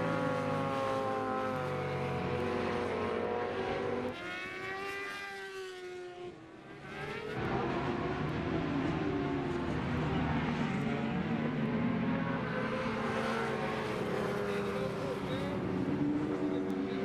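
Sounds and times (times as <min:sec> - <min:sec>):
motorcycle passing by: 0:00.0 - 0:07.4
racing motorcycles at high revs: 0:00.0 - 0:09.3.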